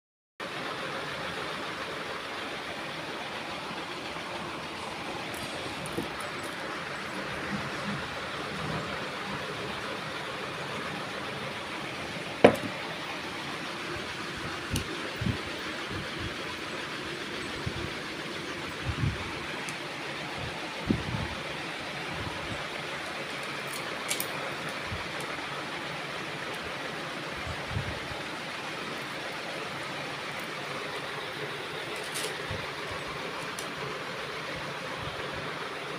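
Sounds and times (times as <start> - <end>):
steady background noise: 0.4 - 35.9
metal block knocking on tabletop: 12.4 - 12.7.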